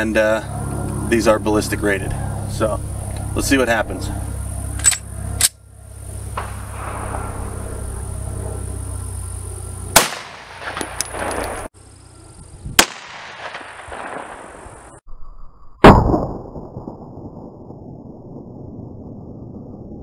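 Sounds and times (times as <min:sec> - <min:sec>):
pistol gunshots: 0:06.4 - 0:07.3, 0:09.9 - 0:11.7, 0:12.8 - 0:14.7.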